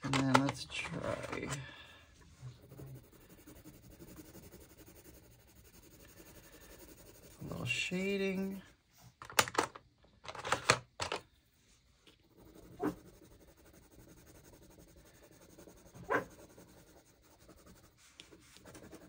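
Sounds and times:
pencil scratching on paper: 0:02.2 - 0:08.6, 0:12.1 - 0:19.0.

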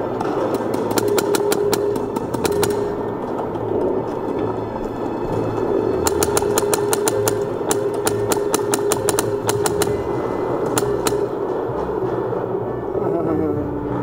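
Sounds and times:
steady hum: 0:00.0 - 0:14.0
paintball markers firing: 0:00.2 - 0:03.1, 0:06.0 - 0:11.4.

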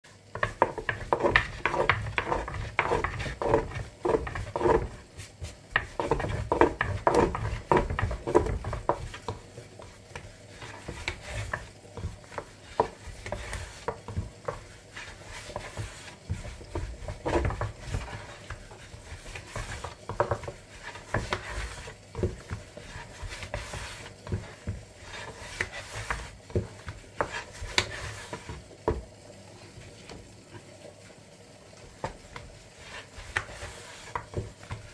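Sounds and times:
rolling pin knocking on board: 0:05.7 - 0:09.4, 0:15.5 - 0:29.0.

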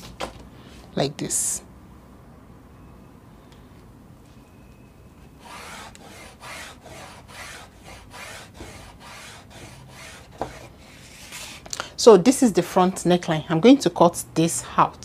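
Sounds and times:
chalk scratching along ruler: 0:05.4 - 0:11.6.

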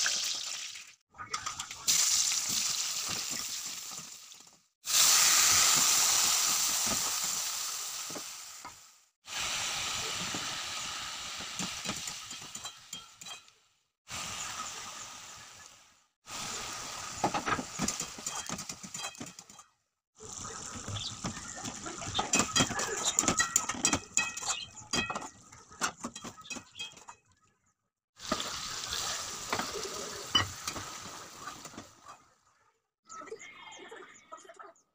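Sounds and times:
curry sizzling in a metal pan: 0:01.8 - 0:13.5, 0:14.1 - 0:19.6, 0:28.2 - 0:31.8.

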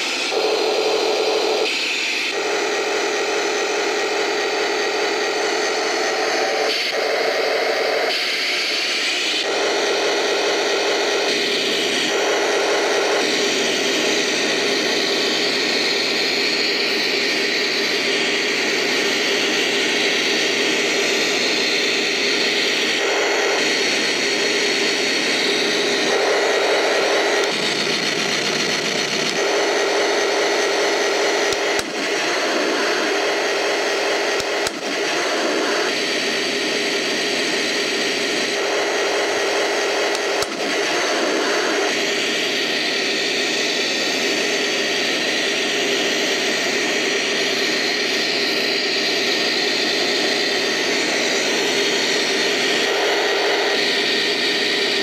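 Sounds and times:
toy tank electronic engine sound: 0:00.0 - 0:55.0
drive motors whining: 0:08.7 - 0:55.0
sharp clicks: 0:34.4 - 0:35.1, 0:40.1 - 0:41.0.

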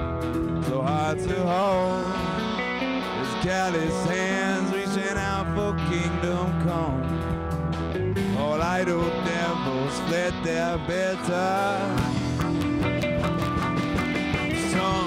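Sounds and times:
drums: 0:00.0 - 0:15.0
electric guitar: 0:00.0 - 0:15.0
electric upright bass: 0:00.0 - 0:15.0
man singing: 0:00.6 - 0:07.5, 0:08.2 - 0:12.5, 0:14.3 - 0:15.0.

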